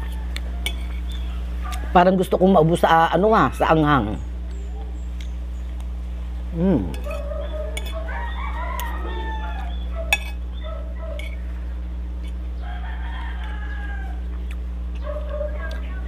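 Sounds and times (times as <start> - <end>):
rooster crowing: 0.0 - 2.3, 7.1 - 11.4, 12.5 - 14.4.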